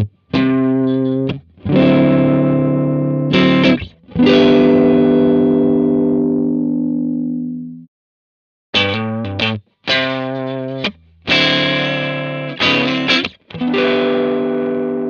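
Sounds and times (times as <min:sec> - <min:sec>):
distorted electric guitar chords: 0:00.0 - 0:07.9, 0:08.8 - 0:15.0.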